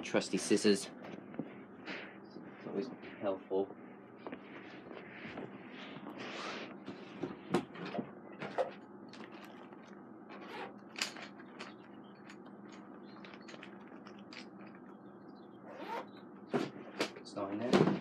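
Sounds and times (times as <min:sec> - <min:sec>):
rustling: 0:04.2 - 0:15.0
small objects clicking and knocking: 0:10.8 - 0:15.0.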